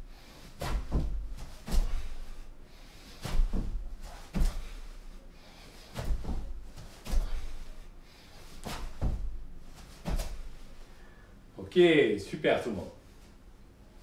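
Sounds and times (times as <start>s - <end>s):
feet and hands thudding on floor mat: 0.4s - 5.2s, 5.8s - 10.9s.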